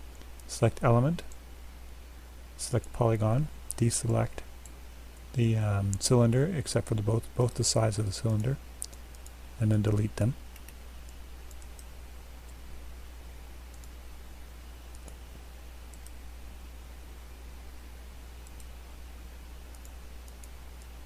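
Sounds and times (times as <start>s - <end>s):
computer mouse clicks: 8.3s - 9.4s, 10.5s - 11.9s, 13.7s - 14.0s, 14.9s - 15.2s, 15.9s - 16.2s, 18.4s - 18.7s, 19.7s - 20.9s.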